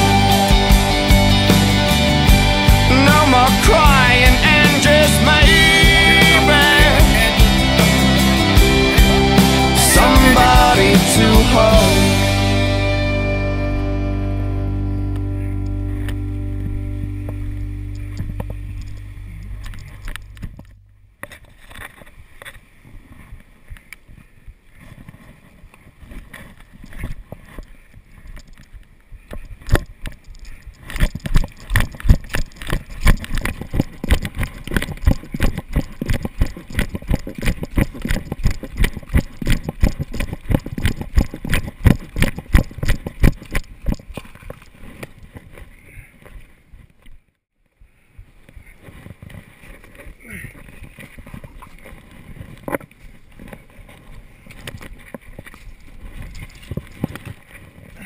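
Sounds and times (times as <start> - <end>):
running footfalls: 30.8 - 46.4.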